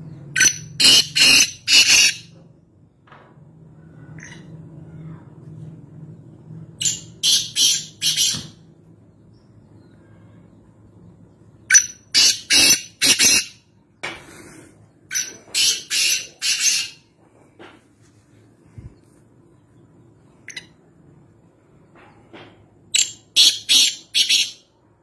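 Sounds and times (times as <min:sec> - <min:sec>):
bird harsh rasping calls: 0:00.4 - 0:02.4, 0:06.8 - 0:08.6, 0:11.6 - 0:13.7, 0:15.1 - 0:17.1, 0:23.0 - 0:24.8.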